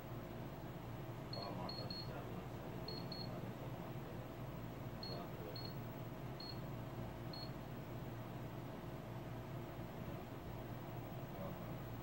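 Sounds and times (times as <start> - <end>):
low electrical hum and hiss: 0.0 - 12.0
short high-pitched beeps: 1.3 - 2.1, 2.9 - 3.3, 6.4 - 6.6.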